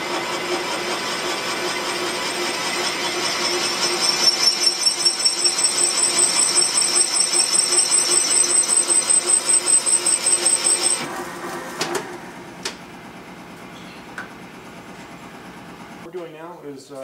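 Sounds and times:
valve seat cutter whining: 0.0 - 11.1.

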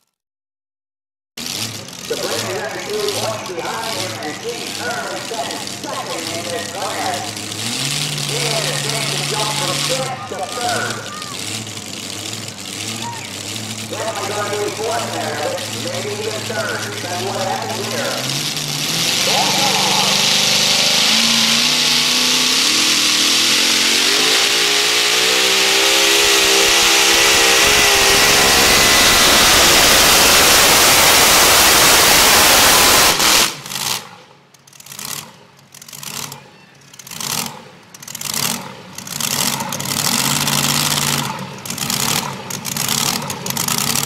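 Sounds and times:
engine at full throttle: 1.4 - 44.0
rising and falling sound: 14.0 - 33.6.

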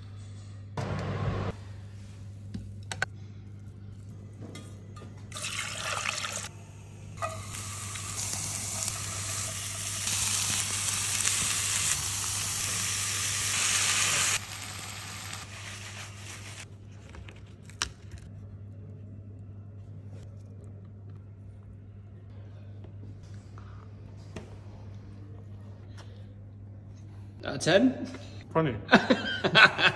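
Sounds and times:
steady low hum: 0.0 - 5.4
vegetables sizzling in frying pan: 7.2 - 16.6.

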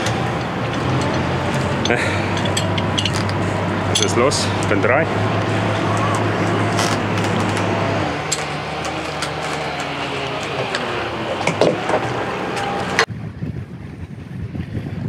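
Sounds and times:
boat engine running: 0.0 - 15.0
wind noise on microphone: 13.0 - 15.0.

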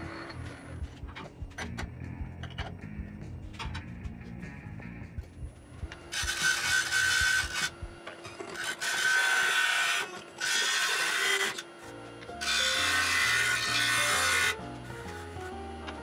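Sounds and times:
background music: 0.0 - 9.2, 10.5 - 16.0
wood lathe cutting whine: 6.0 - 7.8, 8.4 - 11.8, 12.4 - 14.6.

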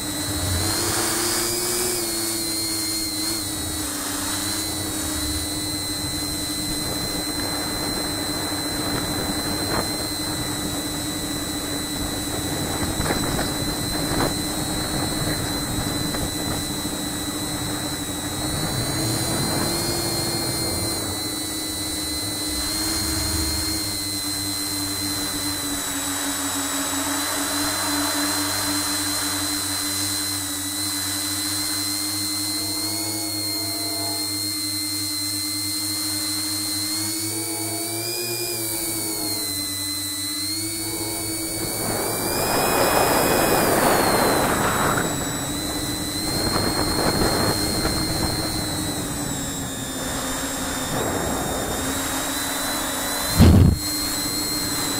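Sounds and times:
drone motors whining: 0.0 - 54.9
low rushing noise: 18.4 - 26.1.

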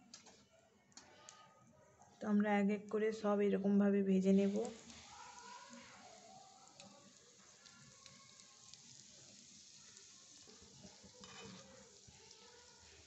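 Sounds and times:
hot oil sizzling: 4.4 - 13.0.

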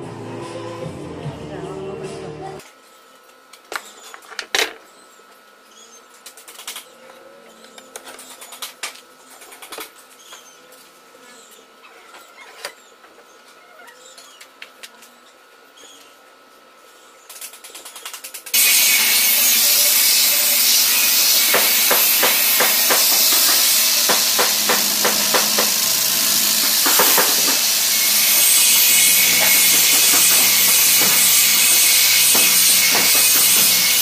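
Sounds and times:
electric sander hissing: 18.5 - 34.0
sander pad scraping wood: 18.6 - 34.0.

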